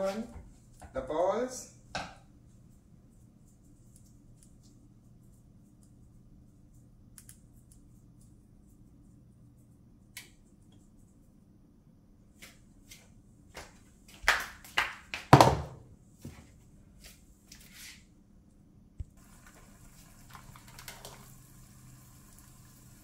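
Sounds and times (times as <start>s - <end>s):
oil sizzling and crackling in pan: 19.2s - 23.0s.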